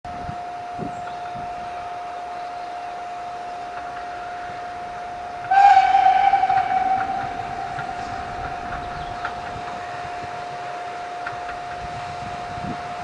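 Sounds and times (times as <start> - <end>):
steam locomotive whistle: 4.5 - 10.7.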